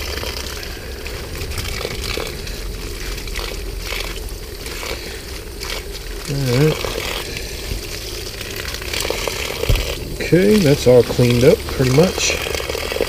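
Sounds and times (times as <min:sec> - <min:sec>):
hose nozzle spraying water on plastic: 0:00.0 - 0:13.0
water splashing: 0:00.0 - 0:13.0.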